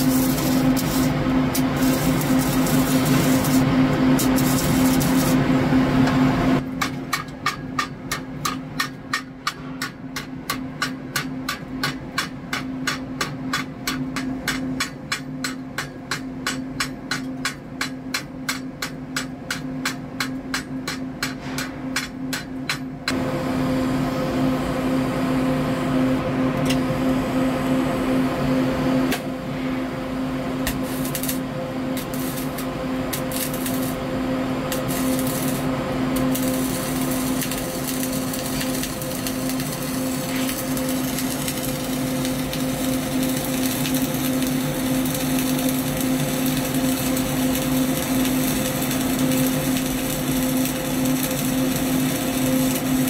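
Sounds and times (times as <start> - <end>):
crackling welding arc: 0.0 - 5.5, 30.6 - 53.0
constant hum: 0.0 - 53.0
hammer tapping steel plate: 6.8 - 22.9.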